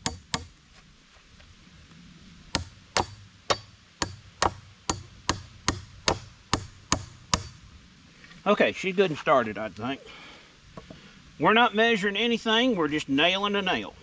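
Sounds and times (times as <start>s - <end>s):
hatchet hammering metal nail: 0.0s - 0.5s, 2.6s - 7.6s.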